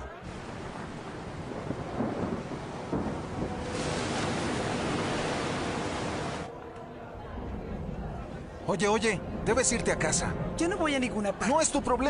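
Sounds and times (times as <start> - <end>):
stormy ocean surf: 0.0 - 6.5
wind: 0.0 - 12.0
big wave breaking: 0.2 - 6.5.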